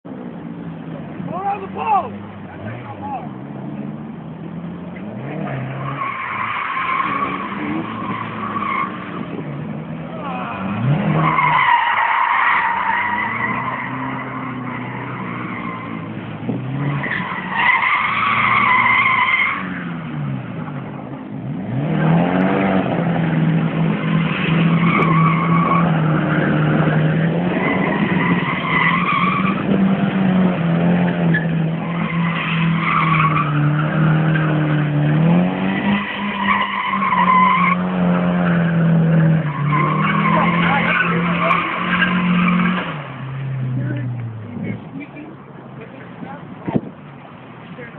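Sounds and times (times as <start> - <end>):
car engine revving high: 0.6 - 45.0
tyres squealing: 10.0 - 20.0, 24.1 - 30.3, 30.9 - 44.6.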